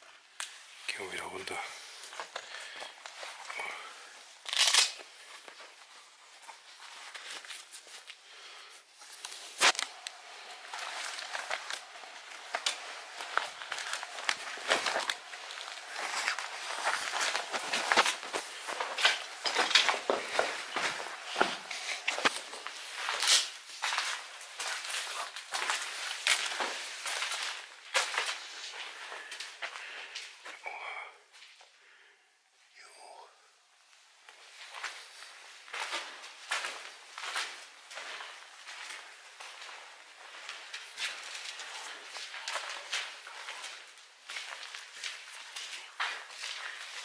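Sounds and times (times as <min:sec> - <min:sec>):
footsteps crunching on debris: 0:01.5 - 0:30.5, 0:34.3 - 0:47.0.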